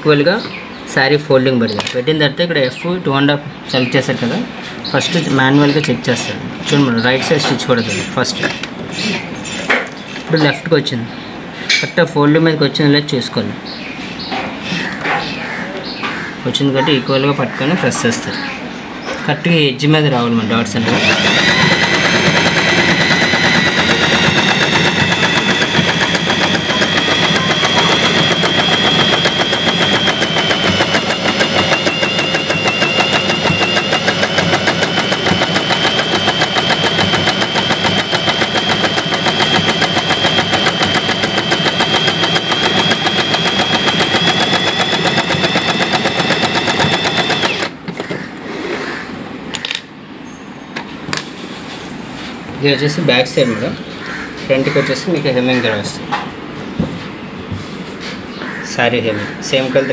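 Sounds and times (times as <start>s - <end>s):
sewing machine running: 20.8s - 47.8s.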